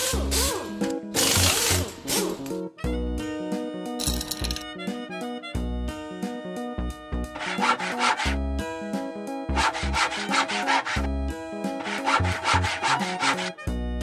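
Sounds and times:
hand saw cutting: 0.0 - 2.4, 7.4 - 8.4, 9.5 - 13.7
background music: 0.0 - 14.0.

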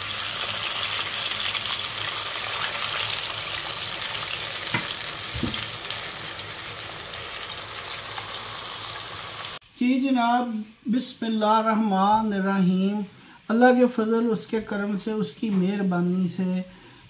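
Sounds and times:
oil sizzling and bubbling: 0.0 - 9.7.

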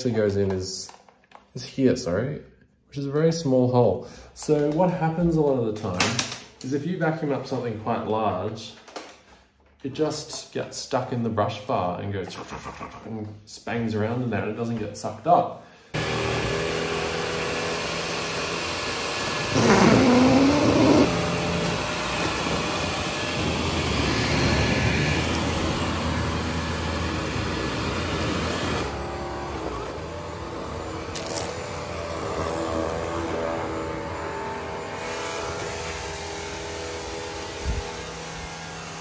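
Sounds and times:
robot vacuum whirring: 19.4 - 24.7.

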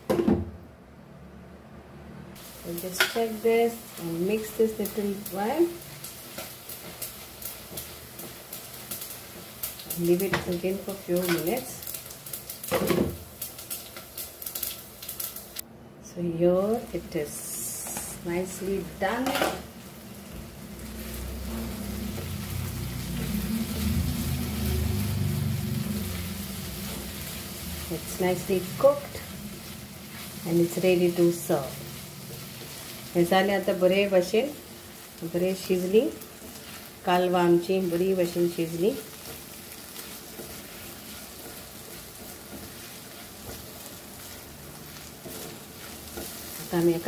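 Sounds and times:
food sizzling in a pan: 2.4 - 15.6, 16.5 - 47.0
spatula stirring: 28.8 - 33.2, 36.2 - 47.0.

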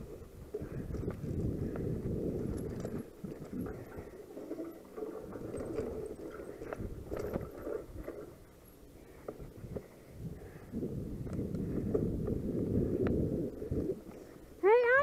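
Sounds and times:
bike rattling and knocking: 0.0 - 8.4
bike tyres rumbling on dirt: 0.0 - 8.5, 9.1 - 14.3.

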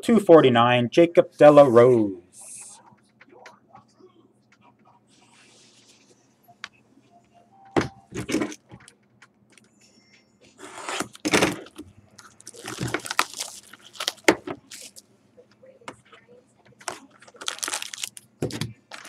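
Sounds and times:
cardboard pack rustling: 10.9 - 15.0, 16.9 - 18.2.

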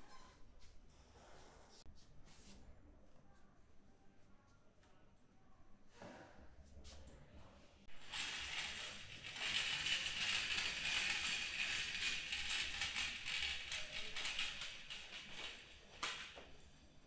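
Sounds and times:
rods rattling in a metal cart: 8.0 - 16.3.

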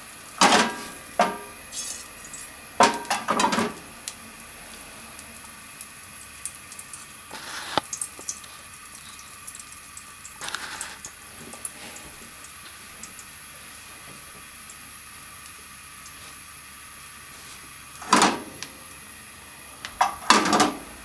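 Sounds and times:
oil hissing and crackling: 0.0 - 21.0
oil sizzling spurts: 0.0 - 21.0.

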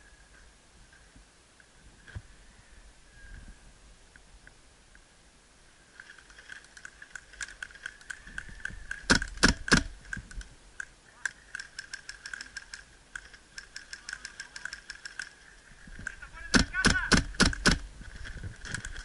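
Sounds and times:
airsoft gunfire ticks and clicks: 8.9 - 10.9, 11.5 - 15.4, 16.0 - 17.9.

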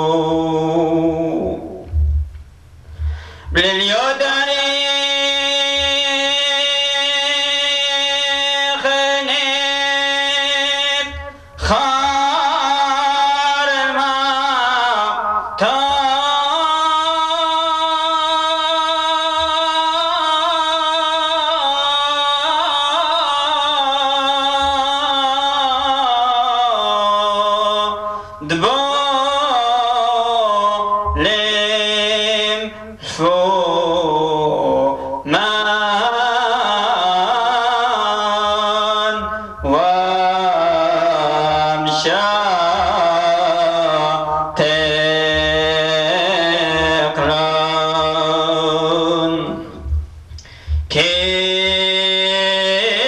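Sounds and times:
man chanting a hymn: 0.0 - 2.2, 3.0 - 53.0
breaths between phrases: 2.8 - 3.6, 28.0 - 28.5, 49.6 - 50.9.

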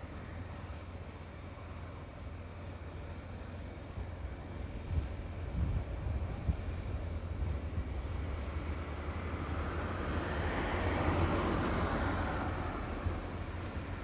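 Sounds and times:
vehicle passing by: 8.7 - 13.4.

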